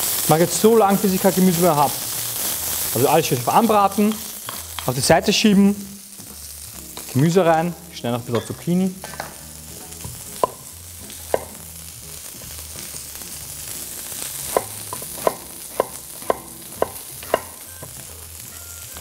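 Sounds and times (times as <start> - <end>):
vegetables sizzling in oil: 0.0 - 19.0
knife chopping on a wooden board: 14.5 - 17.6.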